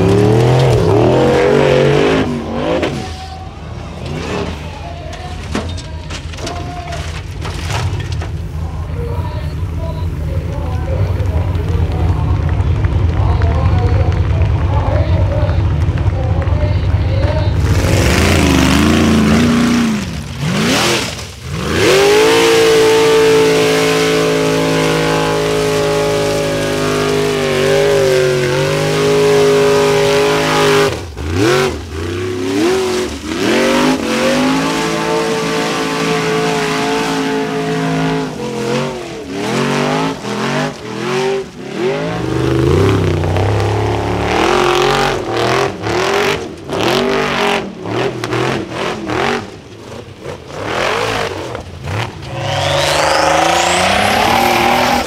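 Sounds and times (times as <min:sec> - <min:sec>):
buggy engine revving: 0:00.0 - 0:55.0.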